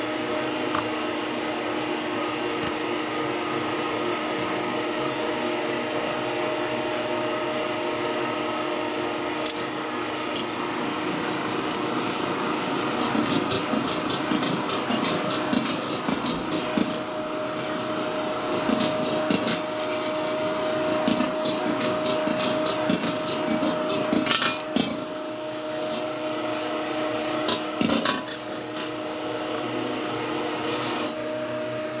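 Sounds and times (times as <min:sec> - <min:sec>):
gas burner roar: 0:00.0 - 0:32.0
metal spatula scraping wok: 0:27.0 - 0:28.9.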